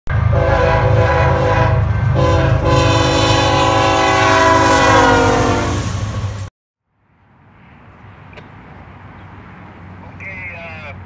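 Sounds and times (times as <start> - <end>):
locomotive air horn blasts: 0.1 - 6.0.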